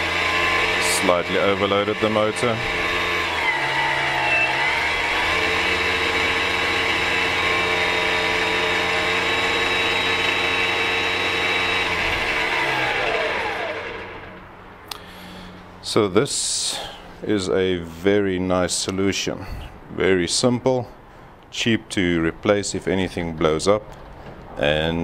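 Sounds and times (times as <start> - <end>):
electric motor whine: 0.0 - 14.7.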